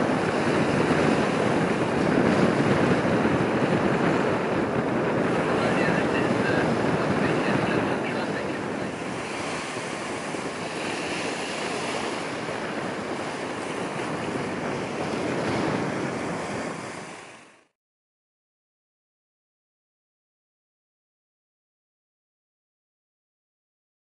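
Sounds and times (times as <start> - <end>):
wind buffeting microphone: 0.0 - 17.7
water washing at shoreline: 0.0 - 17.8.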